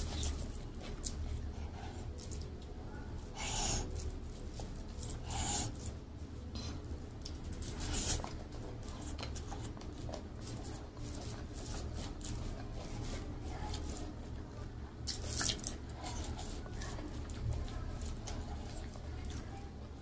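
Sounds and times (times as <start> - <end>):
chewing food: 0.0 - 20.0
foil rustle: 3.2 - 14.5.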